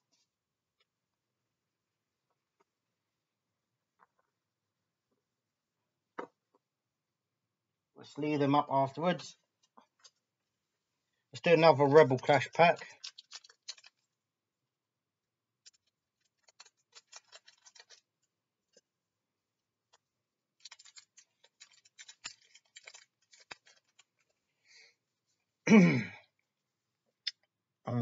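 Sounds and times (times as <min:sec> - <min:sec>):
foil wrapper crinkling: 0:12.2 - 0:14.1, 0:15.7 - 0:18.3, 0:20.6 - 0:24.4
person's short vocal sound: 0:25.7 - 0:26.2.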